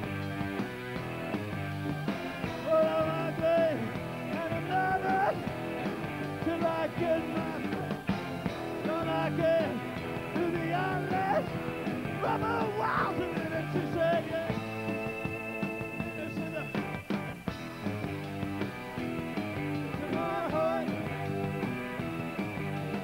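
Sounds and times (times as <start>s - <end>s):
rock band playing: 0.0s - 23.0s
person singing: 2.6s - 5.4s, 6.4s - 7.7s, 8.8s - 11.5s, 12.2s - 14.6s, 20.0s - 21.1s.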